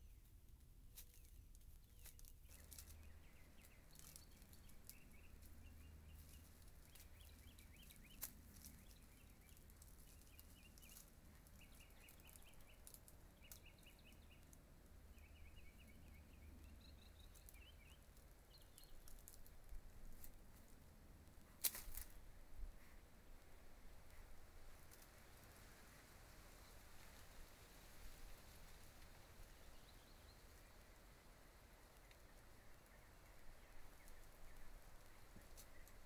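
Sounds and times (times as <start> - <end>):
faint clicks: 1.0 - 14.6
bird chirping in trills: 1.1 - 19.4.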